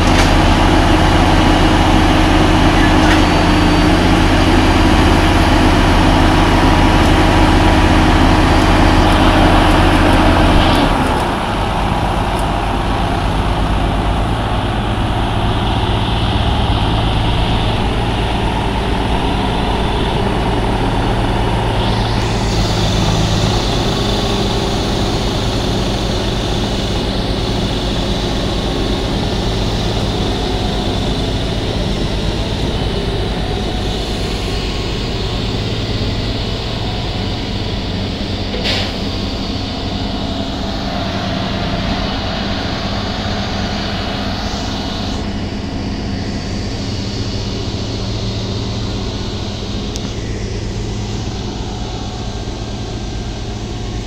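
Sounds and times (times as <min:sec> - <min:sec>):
diesel engine hum: 0:00.0 - 0:54.0
machine hum: 0:00.0 - 0:54.0.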